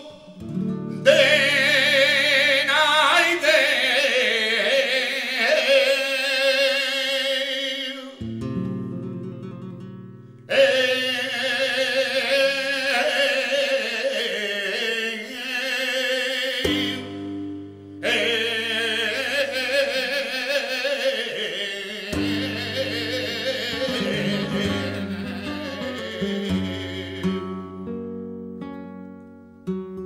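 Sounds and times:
man singing with vibrato: 0:00.0 - 0:08.2, 0:10.5 - 0:27.7
flamenco guitar: 0:00.0 - 0:30.0.

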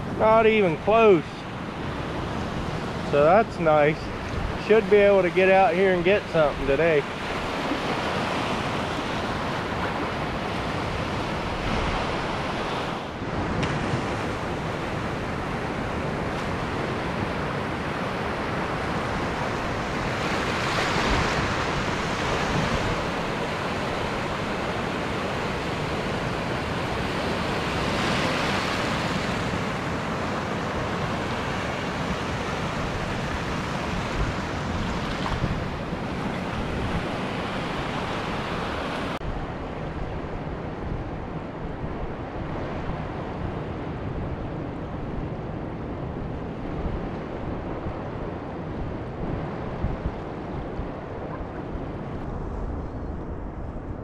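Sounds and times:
ocean waves breaking on beach: 0:00.0 - 0:54.0.

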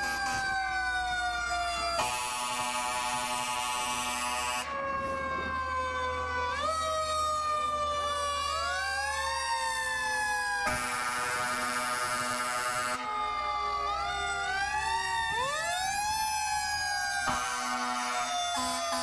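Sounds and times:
fire truck sirens wailing: 0:00.0 - 0:19.0
steady horn blast: 0:17.6 - 0:19.0.

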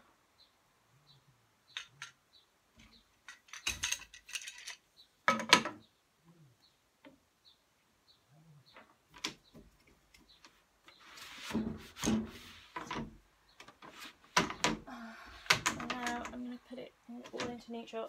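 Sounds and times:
wooden loom clicks and knocks: 0:02.8 - 0:05.8, 0:12.0 - 0:17.8
shuttle rustling through threads: 0:09.1 - 0:18.0.

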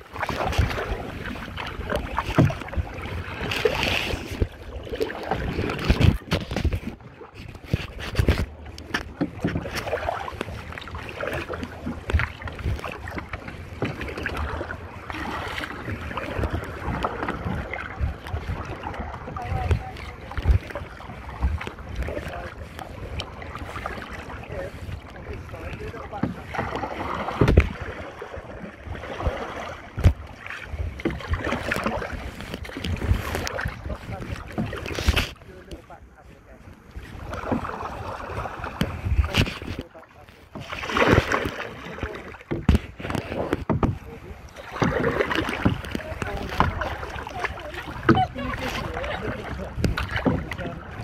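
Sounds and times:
wind buffeting microphone: 0:00.0 - 0:39.9, 0:40.6 - 0:51.0
paddle splashing in water: 0:00.0 - 0:51.0
knocks on canoe hull: 0:42.5 - 0:44.1.

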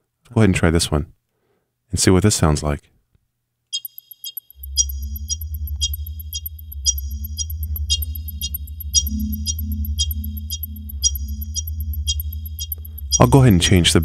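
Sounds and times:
high electronic chirps: 0:03.8 - 0:14.0
low synth drone: 0:04.0 - 0:14.0.

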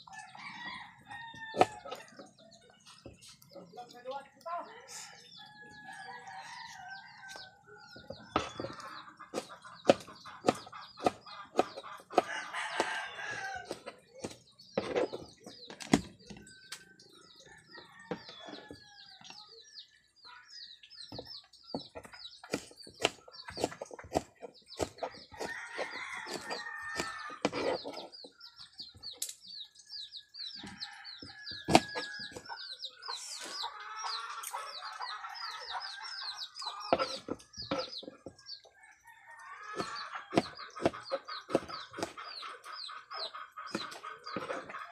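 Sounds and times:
chickens clucking and crowing: 0:00.0 - 0:03.6, 0:04.6 - 0:44.9
knife chopping on cutting board: 0:31.6 - 0:32.1.

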